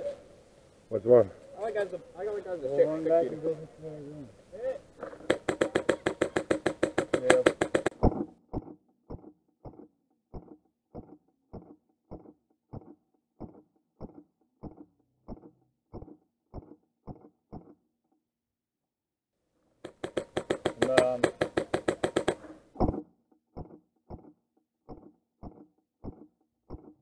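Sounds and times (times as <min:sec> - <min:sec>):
airsoft rifle full-auto burst: 0:05.2 - 0:08.1, 0:19.8 - 0:22.6.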